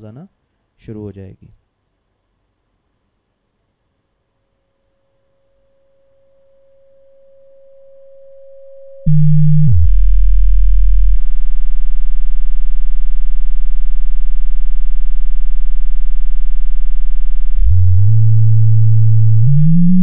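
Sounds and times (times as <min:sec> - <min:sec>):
steady sine tone: 0:05.2 - 0:20.0
loud low buzz: 0:09.1 - 0:20.0.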